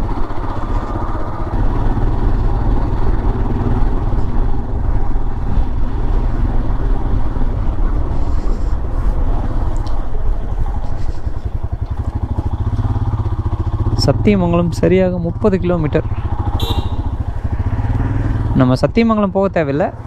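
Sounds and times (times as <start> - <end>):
motorcycle engine running: 0.0 - 8.4, 10.3 - 20.0
road noise: 0.0 - 20.0.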